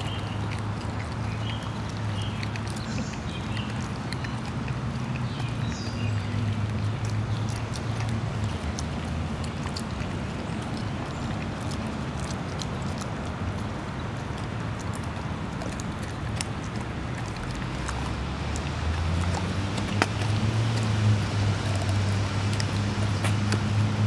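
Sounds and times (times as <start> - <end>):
dogs licking lips: 0.0 - 24.0
low motor hum: 15.2 - 24.0.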